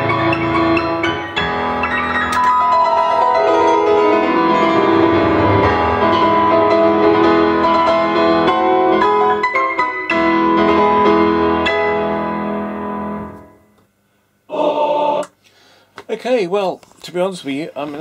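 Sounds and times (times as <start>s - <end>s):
solo piano march: 0.0s - 13.6s.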